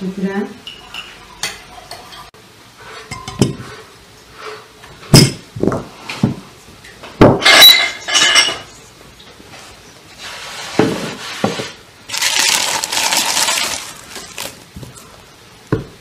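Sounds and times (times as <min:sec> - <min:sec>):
kitchenware clinking: 0:00.6 - 0:02.3, 0:03.0 - 0:03.9, 0:07.2 - 0:08.8.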